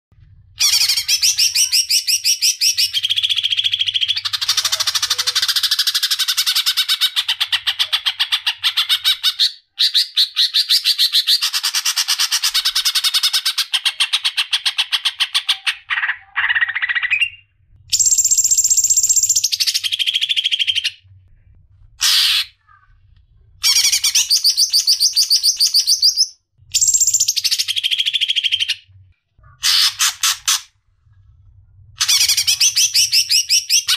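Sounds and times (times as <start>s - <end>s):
bird singing rapid trilled song: 16.4s - 21.0s, 23.7s - 29.6s.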